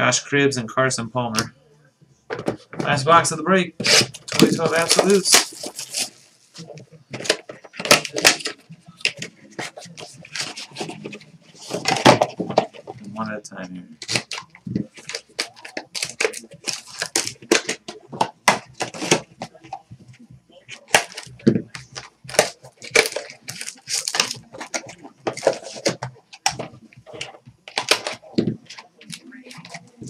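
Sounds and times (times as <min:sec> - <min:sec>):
plastic wrappers crinkling: 0:03.8 - 0:13.2, 0:14.0 - 0:20.1, 0:20.7 - 0:30.0
trading cards handled: 0:03.8 - 0:13.2, 0:14.0 - 0:30.0.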